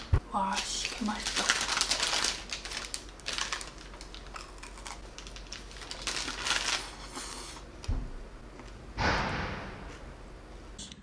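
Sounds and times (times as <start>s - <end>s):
plastic wrapper crinkling: 0.5s - 7.1s.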